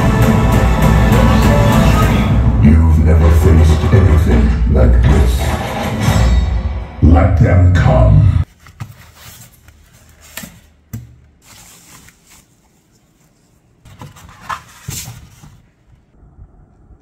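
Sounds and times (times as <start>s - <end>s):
film dialogue and soundtrack: 0.0s - 8.5s.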